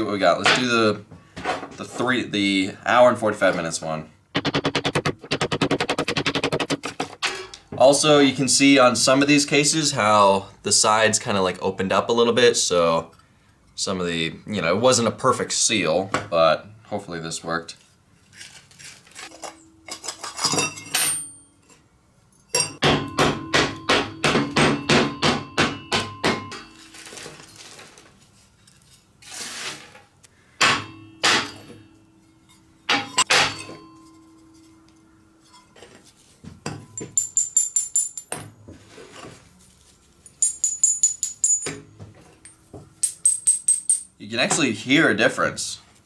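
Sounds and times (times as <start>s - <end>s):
small steel pieces clinking: 19.2s - 22.8s, 37.0s - 38.4s, 40.2s - 41.8s, 42.4s - 44.2s
ringing metal knocks: 22.5s - 26.8s, 30.6s - 34.9s, 36.6s - 38.5s, 40.4s - 44.2s.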